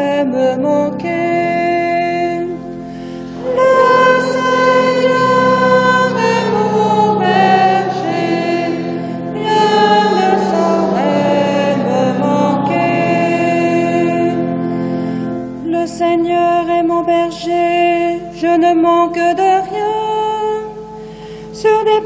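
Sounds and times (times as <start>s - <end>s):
sustained low accompaniment: 0.3s - 15.8s
choir singing: 3.2s - 14.6s.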